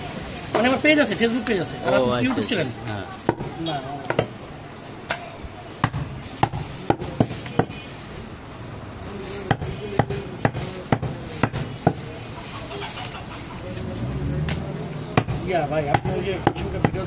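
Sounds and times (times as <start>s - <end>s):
cleaver chopping ribs on wood: 15.2s - 17.0s.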